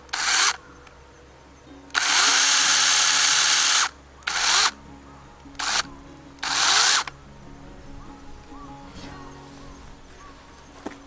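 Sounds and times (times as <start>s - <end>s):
mini chainsaw cutting log: 0.0s - 0.6s, 1.9s - 4.8s, 5.6s - 5.8s, 6.4s - 7.1s
background music: 0.0s - 11.0s.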